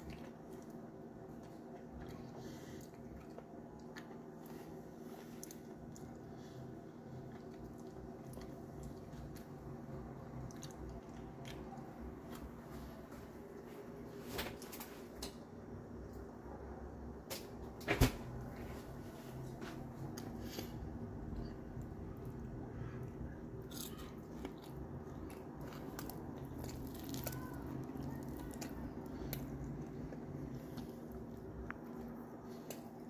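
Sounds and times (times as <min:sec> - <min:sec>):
chewing and crunching: 0:00.0 - 0:12.9, 0:20.0 - 0:33.0.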